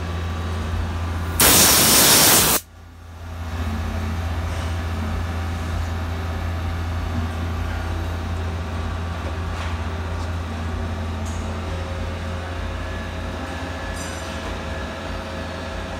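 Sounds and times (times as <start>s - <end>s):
coolant spraying hiss: 1.4s - 2.6s.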